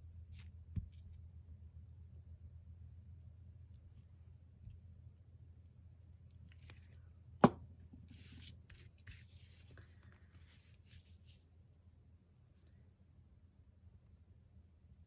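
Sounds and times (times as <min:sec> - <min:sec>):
paper rustling and rubbing: 0:08.1 - 0:11.4.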